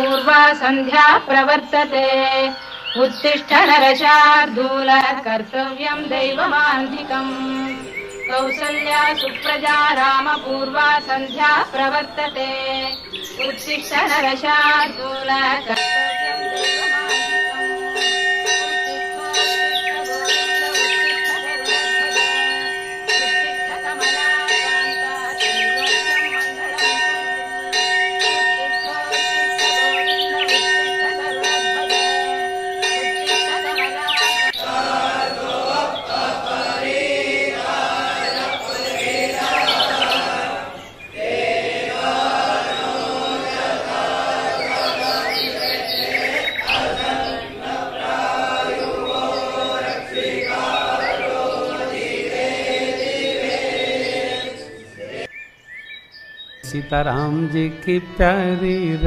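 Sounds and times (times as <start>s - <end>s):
devotional singing with music: 0.0s - 55.4s, 56.6s - 59.0s
hand bells ringing: 15.7s - 40.4s.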